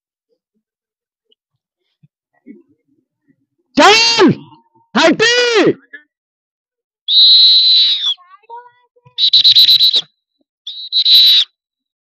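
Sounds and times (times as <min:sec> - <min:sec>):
pea whistle blasts: 0:07.1 - 0:08.2, 0:09.2 - 0:11.6.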